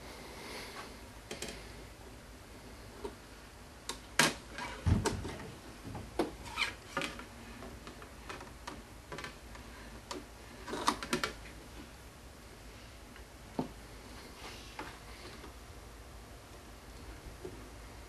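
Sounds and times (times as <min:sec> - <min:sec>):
hard objects clicking and knocking: 0:10.1 - 0:11.4.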